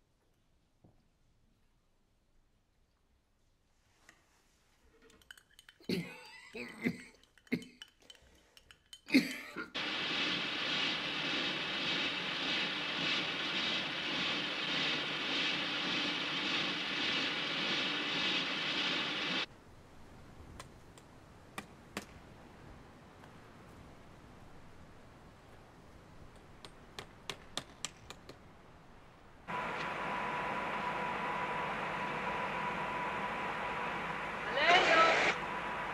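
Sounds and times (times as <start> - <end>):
old man coughing: 9.1 - 9.8
loud rushing noise: 9.8 - 19.5, 29.5 - 35.9.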